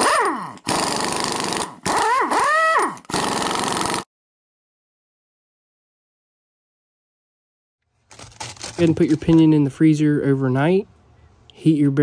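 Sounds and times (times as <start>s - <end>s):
power tool rattling: 0.0s - 4.0s.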